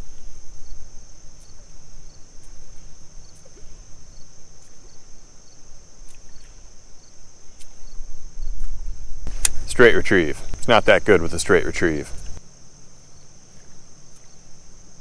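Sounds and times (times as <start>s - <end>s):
high-pitched insect chorus: 0.0s - 15.0s
low outdoor rumble: 0.0s - 15.0s
faint sharp clicks: 9.3s - 9.6s.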